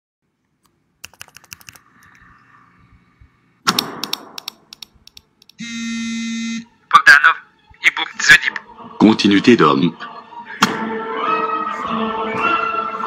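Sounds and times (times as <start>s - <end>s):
keyboard keys clicking: 1.0s - 2.2s, 3.7s - 5.6s
electronic buzz: 5.6s - 6.7s.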